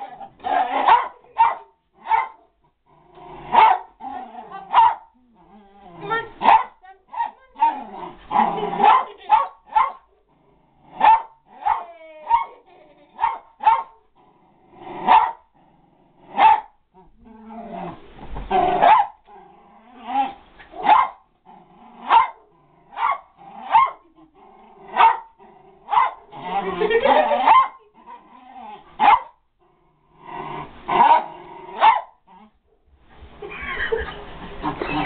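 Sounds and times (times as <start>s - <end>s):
small dog barking: 0.5s - 2.4s, 3.5s - 3.9s, 4.7s - 5.1s, 6.4s - 7.8s, 8.8s - 10.1s, 11.0s - 12.6s, 13.2s - 14.0s, 15.1s - 15.4s, 16.4s - 16.7s, 18.8s - 19.2s, 20.8s - 21.2s, 22.1s - 24.1s, 25.0s - 25.3s, 25.9s - 26.2s, 27.0s - 27.9s, 29.0s - 29.4s, 31.0s - 32.2s.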